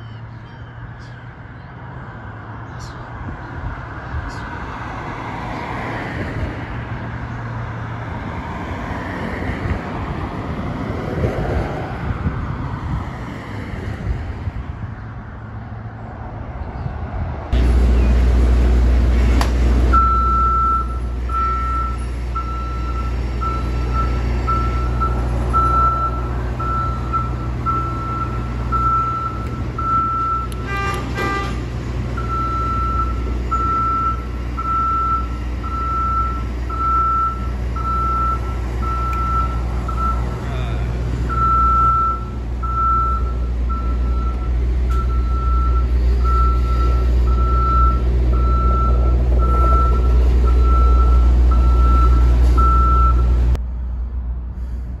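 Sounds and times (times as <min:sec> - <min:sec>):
engine low hum: 0:00.0 - 0:55.0
traffic passing over bridge: 0:00.0 - 0:55.0.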